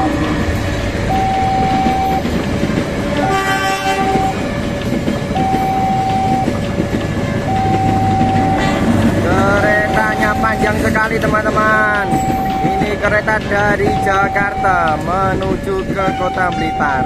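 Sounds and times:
train wheels rumbling on rails: 0:00.0 - 0:17.0
two-tone crossing alarm: 0:01.0 - 0:02.4, 0:03.2 - 0:17.0
train horn blast: 0:03.2 - 0:04.4, 0:07.5 - 0:09.1.

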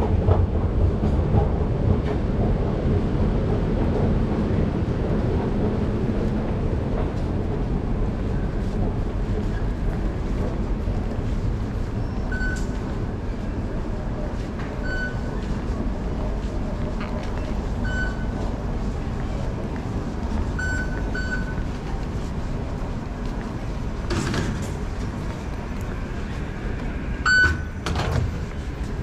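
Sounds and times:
station concourse hum: 0:00.0 - 0:29.0
fare gate beeps: 0:27.3 - 0:27.8.

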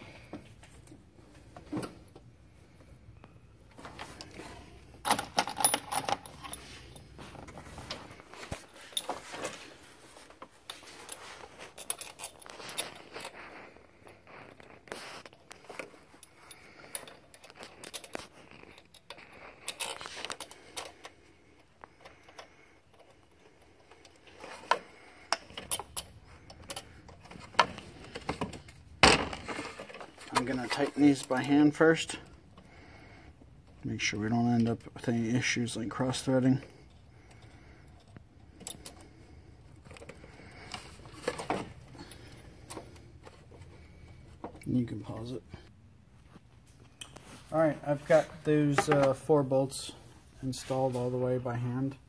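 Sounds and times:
metal tools clinking and scraping: 0:03.7 - 0:32.9.

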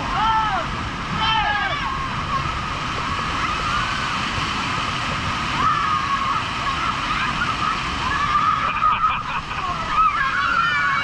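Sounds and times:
waterfall pouring and splashing: 0:00.0 - 0:11.0
people yelling: 0:00.1 - 0:02.4, 0:05.5 - 0:11.0.

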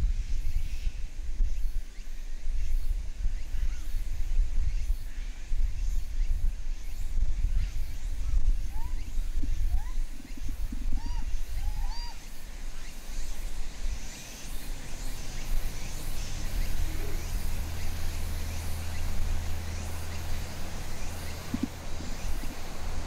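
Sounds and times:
steady low hum: 0:07.3 - 0:23.0.

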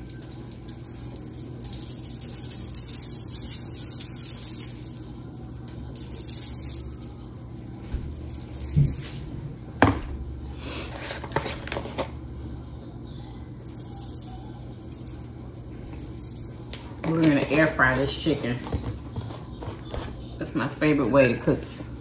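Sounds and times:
seasoning sprinkled from shaker: 0:00.0 - 0:09.4, 0:13.2 - 0:18.1.

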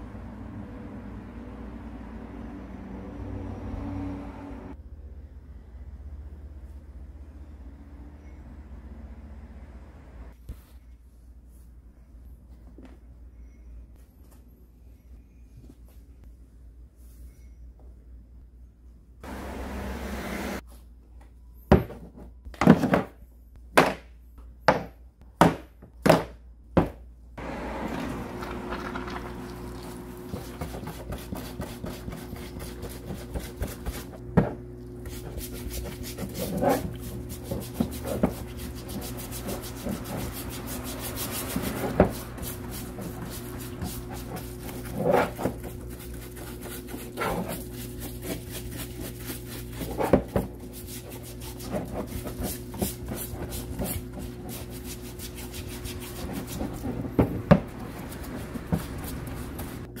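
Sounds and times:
pump humming: 0:19.2 - 0:20.6, 0:27.4 - 0:33.6
stiff brush scrubbing: 0:28.4 - 0:34.2, 0:34.9 - 0:59.9.

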